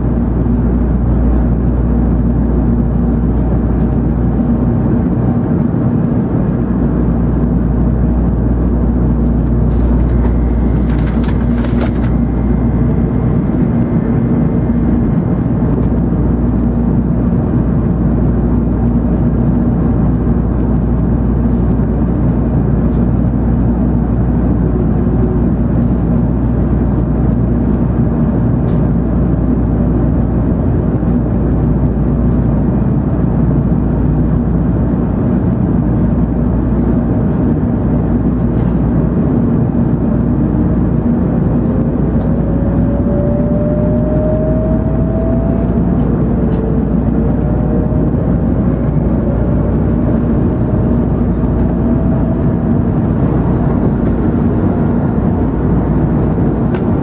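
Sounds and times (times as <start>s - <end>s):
train running rumble: 0.0s - 57.0s
traction motor whine: 7.6s - 19.4s, 39.6s - 57.0s.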